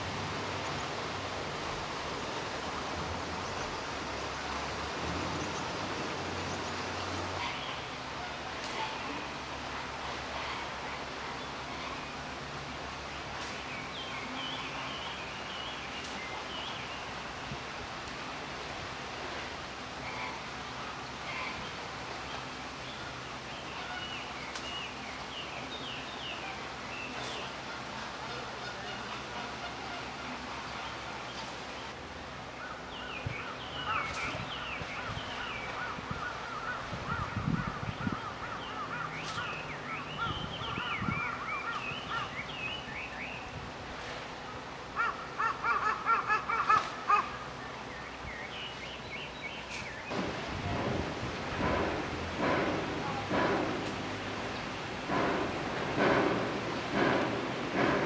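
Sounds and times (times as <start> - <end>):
outdoor background noise: 0.0 - 58.0
even hiss: 48.5 - 58.0.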